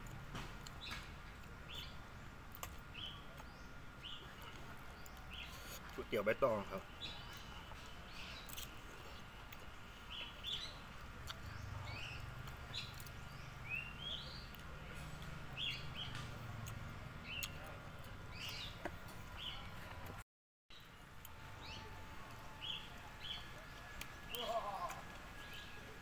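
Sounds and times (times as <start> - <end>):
low steady hum: 0.0 - 26.0
small birds chirping: 0.6 - 26.0.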